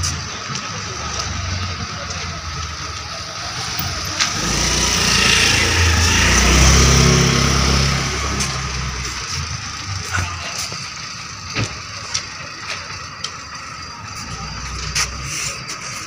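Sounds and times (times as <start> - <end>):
vehicle driving past: 2.6 - 10.1.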